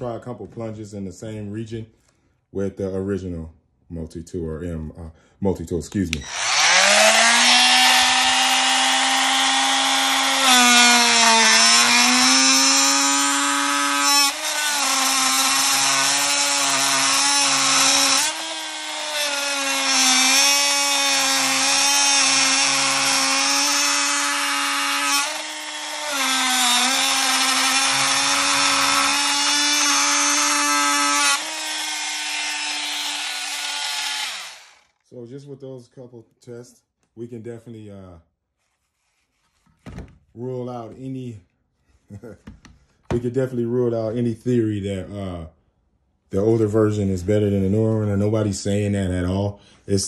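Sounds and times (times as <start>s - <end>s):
multi-tool cutting into wood: 6.2s - 35.0s.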